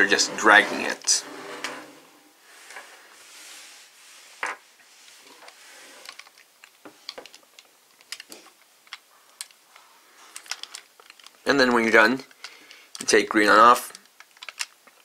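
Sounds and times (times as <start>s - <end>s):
plastic toy scraping: 0.0s - 4.4s, 5.1s - 6.4s
small plastic clicks: 6.0s - 9.6s, 10.4s - 11.4s, 13.8s - 15.0s.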